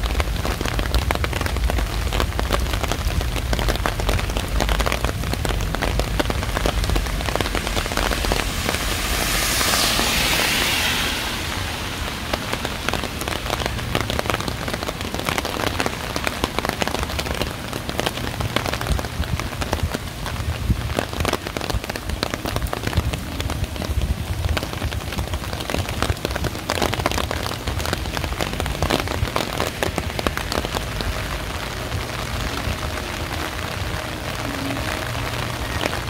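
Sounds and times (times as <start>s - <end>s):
steady rain pattering: 0.0s - 36.0s
smooth hiss: 3.6s - 15.6s.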